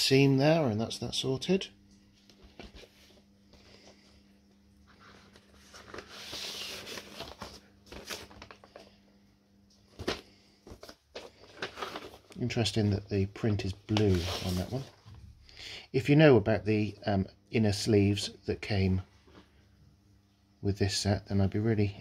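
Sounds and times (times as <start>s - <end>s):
paper sleeve rustling: 4.8s - 9.0s, 9.9s - 15.0s.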